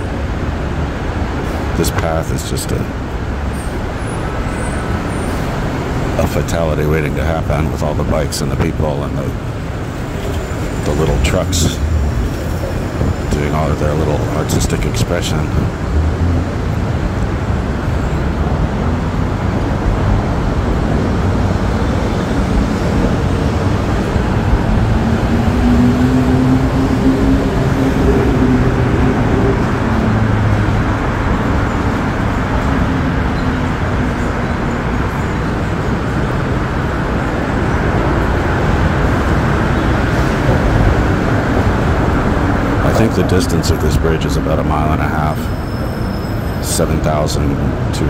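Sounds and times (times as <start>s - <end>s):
road traffic: 0.0s - 48.0s
vehicle engine passing: 8.8s - 45.6s.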